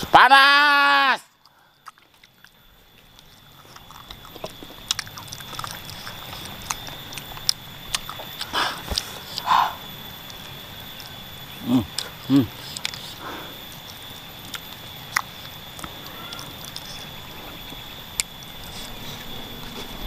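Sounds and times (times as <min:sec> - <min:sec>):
person chewing and sucking: 0:01.8 - 0:20.0
person humming: 0:11.6 - 0:12.8.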